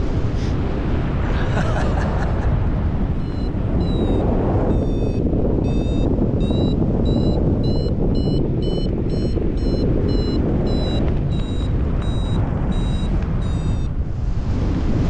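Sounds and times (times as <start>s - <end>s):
airflow rushing on microphone: 0.0s - 15.0s
variometer beeping: 3.2s - 14.0s.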